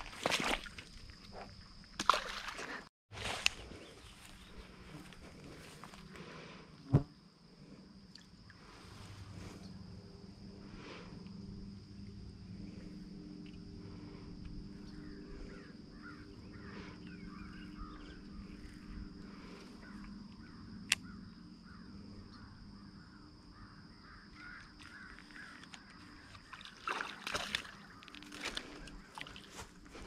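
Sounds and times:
high insect drone: 3.3s - 30.0s
sharp click: 20.9s - 21.1s.

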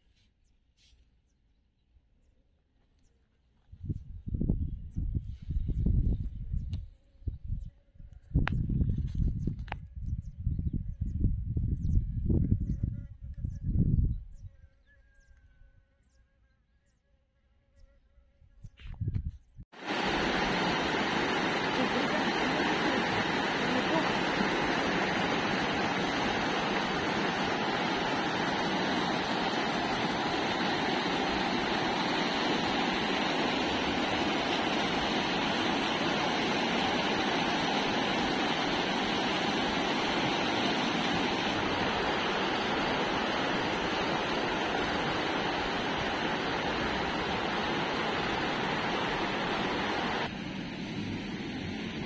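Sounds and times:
stream rushing over rocks: 19.8s - 50.3s.

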